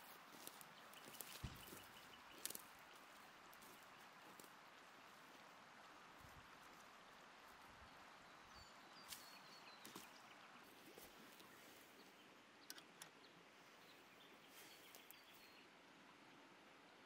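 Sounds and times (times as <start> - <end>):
soft clicks: 12.6 - 13.3.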